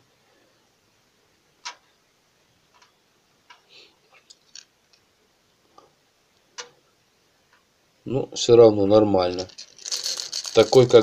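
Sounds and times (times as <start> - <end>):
plastic lures clicking against tub: 9.4 - 11.0.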